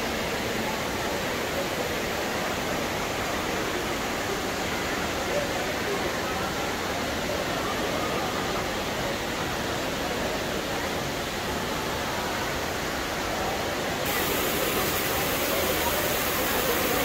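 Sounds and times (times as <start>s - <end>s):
murmur of crowd voices: 0.0s - 17.0s
waterfall pouring into pool: 13.4s - 17.0s.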